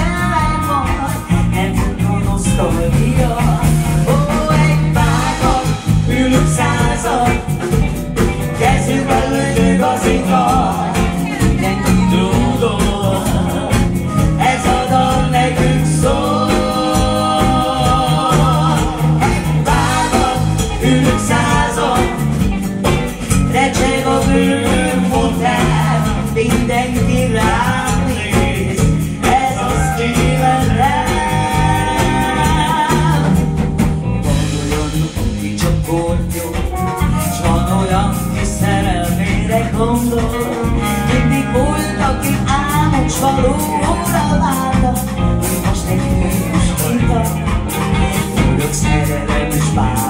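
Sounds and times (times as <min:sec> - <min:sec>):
live jazz band playing: 0:00.0 - 0:50.0
saxophone melody: 0:03.2 - 0:35.3, 0:36.6 - 0:50.0.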